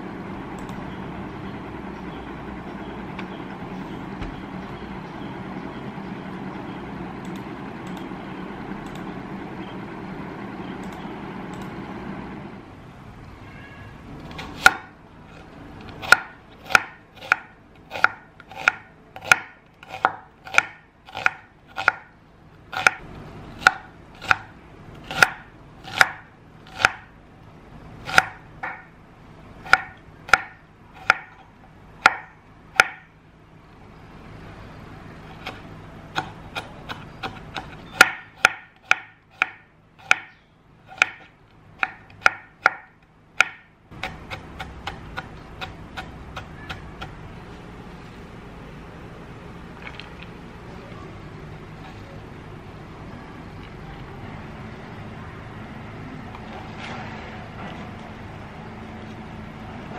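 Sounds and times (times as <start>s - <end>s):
knife chopping on wooden board: 16.0s - 22.1s, 22.7s - 23.0s, 28.1s - 28.9s, 29.7s - 31.4s, 32.0s - 33.1s, 36.2s - 47.2s.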